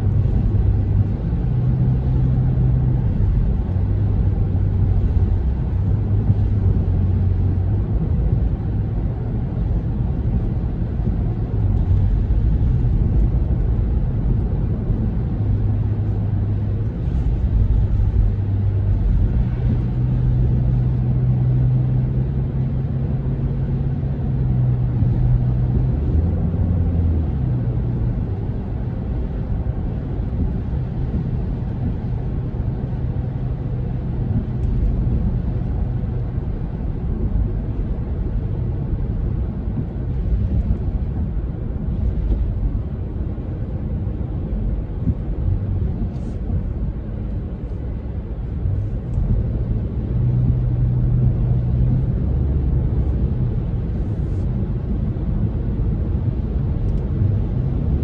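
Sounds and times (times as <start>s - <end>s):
car driving on wet road: 0.0s - 58.0s.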